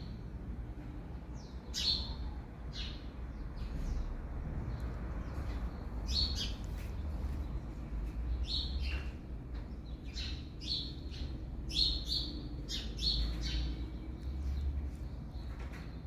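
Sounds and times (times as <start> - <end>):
small songbirds chirping: 0.0 - 16.0.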